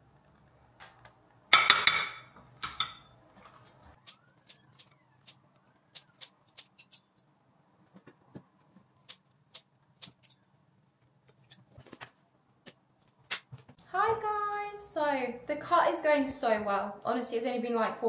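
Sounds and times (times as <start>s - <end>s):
scissors snipping: 9.0s - 10.4s.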